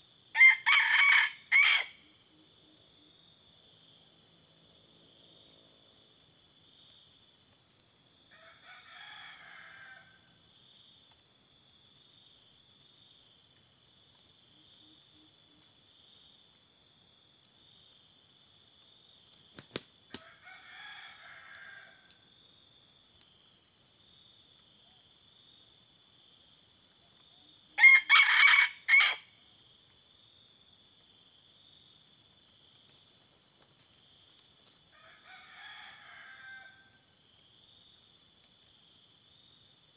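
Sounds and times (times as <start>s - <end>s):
pulsing insect chorus: 0.0s - 39.9s
rooster crowing: 0.4s - 2.0s, 8.3s - 10.3s, 20.2s - 22.2s, 27.8s - 29.3s, 34.9s - 37.0s.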